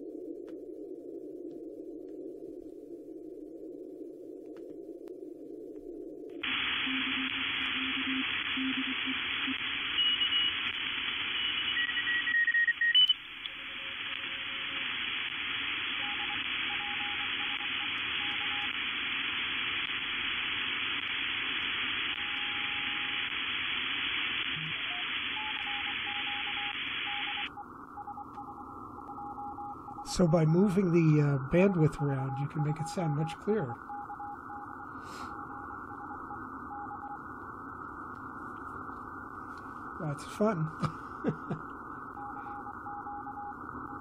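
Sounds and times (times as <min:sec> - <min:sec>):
radio static hiss: 0:04.9 - 0:44.0
faint morse code tones: 0:06.4 - 0:18.8, 0:21.0 - 0:23.4, 0:24.4 - 0:37.4, 0:39.6 - 0:44.0.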